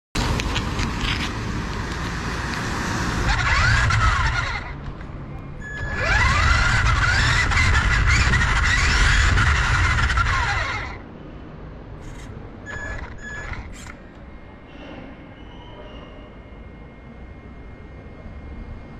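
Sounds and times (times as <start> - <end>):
wheels rattling on brick paving: 0.2 - 5.0, 5.7 - 11.0
toy car electric motor whining: 3.1 - 4.8, 5.6 - 11.0, 12.0 - 14.0.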